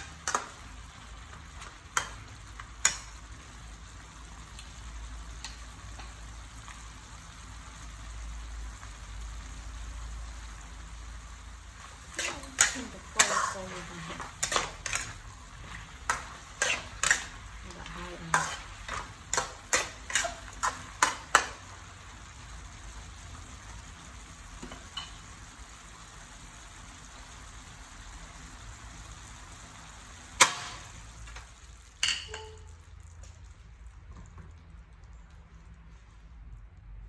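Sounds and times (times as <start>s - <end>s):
food sizzling: 0.0s - 36.0s
metal spatula scraping a wok: 11.9s - 21.6s.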